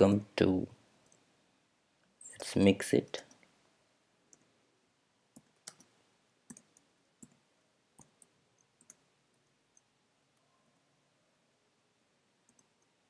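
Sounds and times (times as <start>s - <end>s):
faint keyboard keystrokes: 5.4s - 7.4s.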